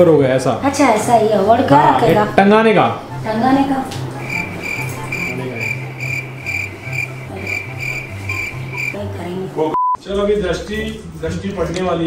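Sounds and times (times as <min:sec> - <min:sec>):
cricket chirping: 0:04.2 - 0:09.0
censor bleep: 0:09.7 - 0:10.0.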